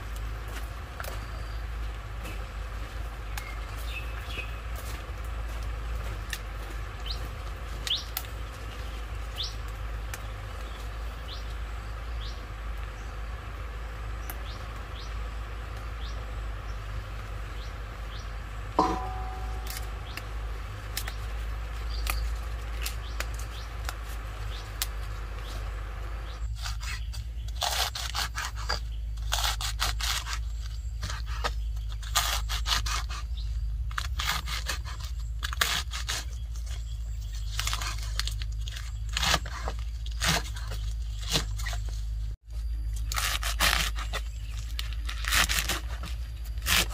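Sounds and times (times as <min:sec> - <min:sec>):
steady low hum: 0:00.0 - 0:46.9
metallic clink: 0:18.8 - 0:19.8
dry material crinkling: 0:33.9 - 0:42.3.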